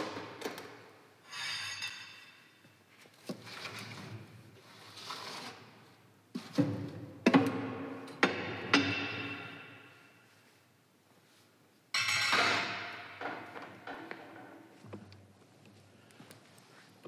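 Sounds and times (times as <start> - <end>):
sharp metallic knocks: 8.2 - 9.9.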